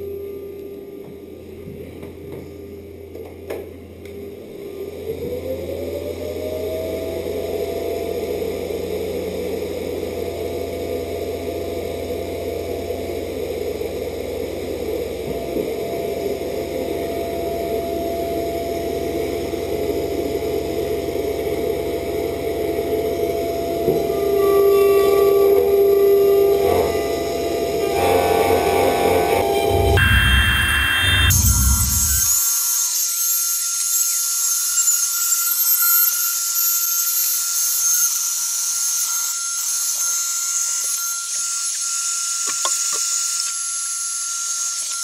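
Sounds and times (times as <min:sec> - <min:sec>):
mechanical hum: 0:00.0 - 0:45.0
spindle whine: 0:00.0 - 0:45.0
router spindle cutting: 0:26.5 - 0:33.3.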